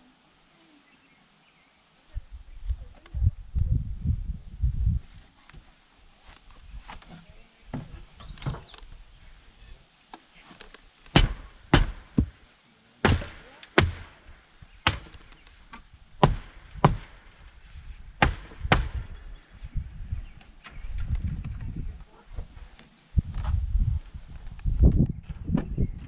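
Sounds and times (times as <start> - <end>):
hammer striking wood: 11.1 - 12.4, 13.0 - 15.4, 16.2 - 17.4, 18.2 - 19.2.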